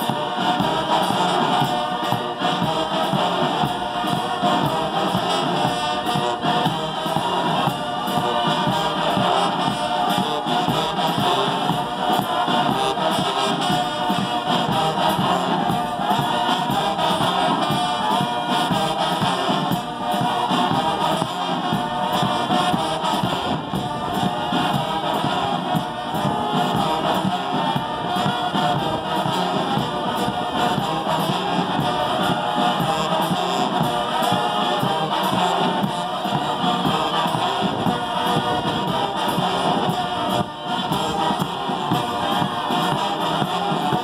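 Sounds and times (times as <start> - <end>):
group of voices singing: 0.0 - 44.0.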